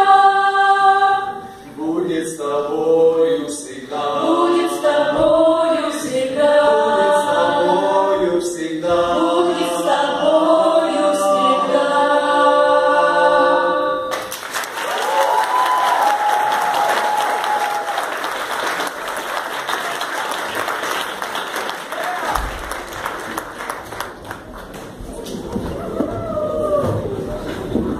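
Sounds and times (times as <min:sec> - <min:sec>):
ensemble singing a cappella: 0:00.0 - 0:14.3
audience applause: 0:14.1 - 0:27.2.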